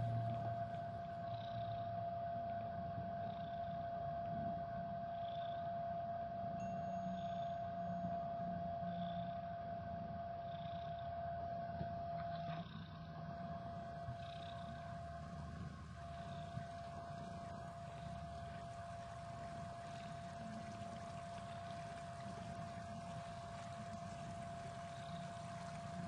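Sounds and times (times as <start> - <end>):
thin steady hum: 0.0 - 26.0
cat purring: 13.7 - 26.0.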